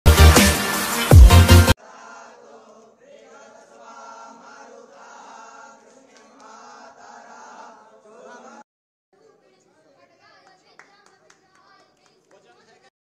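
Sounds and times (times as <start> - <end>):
group chanting in unison: 1.7 - 8.6.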